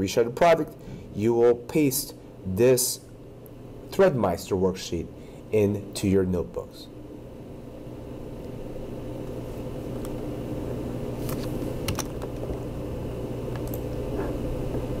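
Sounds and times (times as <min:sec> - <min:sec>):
steady low hum: 0:00.0 - 0:15.0
keyboard and mouse clicks: 0:13.6 - 0:14.0.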